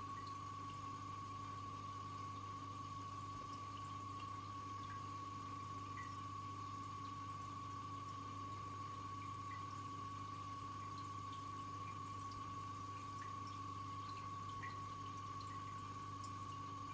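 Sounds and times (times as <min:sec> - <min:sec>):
aquarium hum: 0:00.0 - 0:16.9
water dripping and trickling: 0:00.0 - 0:16.9.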